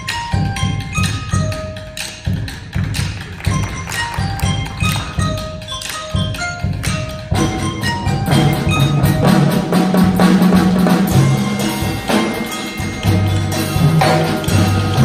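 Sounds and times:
drum strokes: 0.0 - 15.0
mallet keyboard notes: 0.0 - 15.0
low timpani notes: 6.6 - 15.0.

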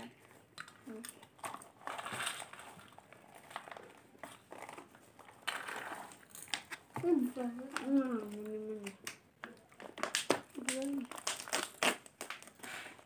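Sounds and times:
plastic bags crinkling: 0.6 - 9.0, 9.6 - 13.0.

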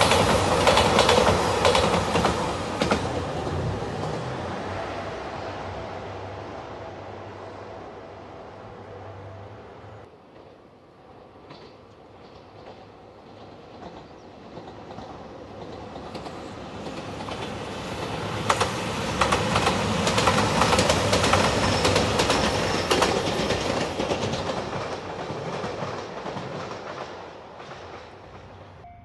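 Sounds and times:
wheels clicking over rail joints: 0.0 - 4.3, 11.4 - 28.6
diesel train passing: 0.0 - 29.0.

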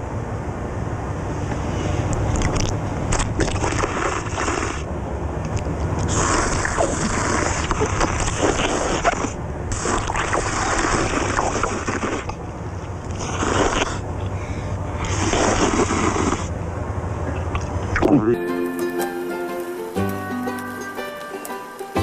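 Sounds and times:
steady low rumble: 0.0 - 18.4
man slurping noodles: 2.4 - 4.9, 6.0 - 12.4, 13.1 - 14.1, 15.0 - 16.6.

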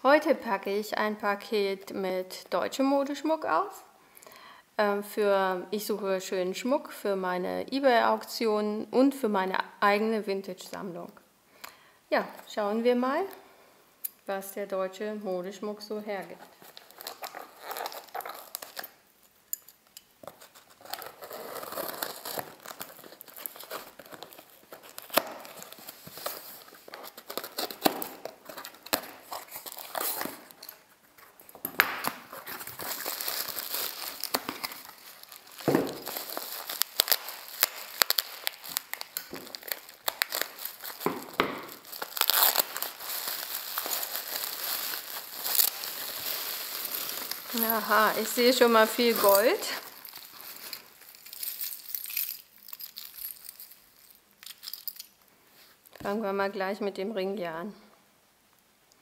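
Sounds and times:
bubble wrap crinkling: 15.9 - 56.0
cardboard parcel being opened: 16.4 - 19.0, 20.2 - 52.0.

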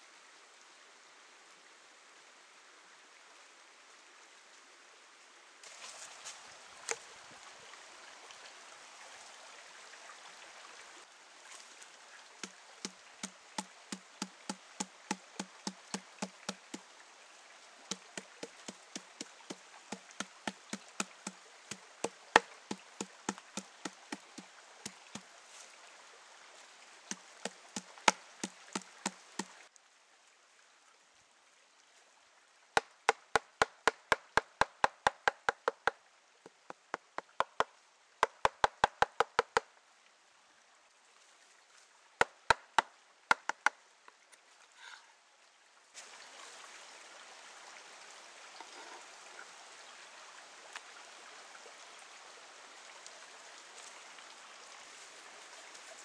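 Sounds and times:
stream running: 0.0 - 56.0
mallet pounding meat on board: 38.2 - 39.6.

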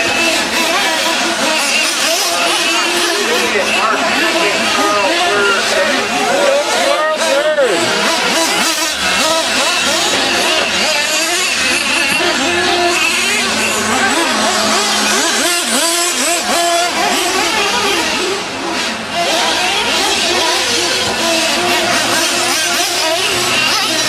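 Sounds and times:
small model engines racing: 0.0 - 24.0.

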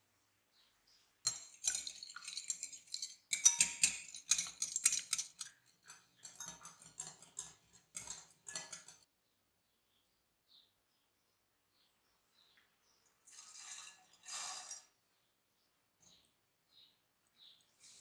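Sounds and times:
whisk clicking against bowl: 1.3 - 9.0.

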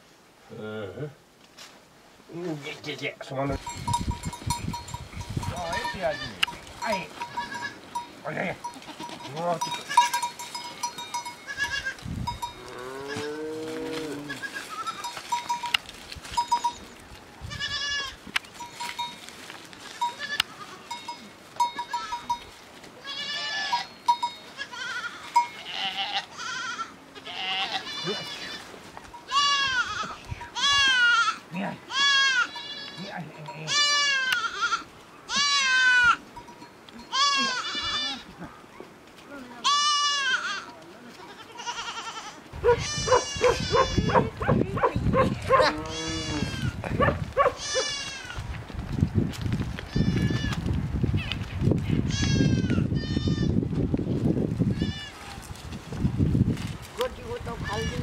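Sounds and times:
goats bleating: 5.6 - 8.0, 8.6 - 12.0, 12.6 - 15.3, 17.4 - 18.2, 20.1 - 21.0, 23.0 - 36.2, 37.0 - 38.6, 39.4 - 44.4, 45.4 - 48.4, 49.9 - 50.6, 52.1 - 53.6, 54.7 - 55.5, 57.5 - 58.0.

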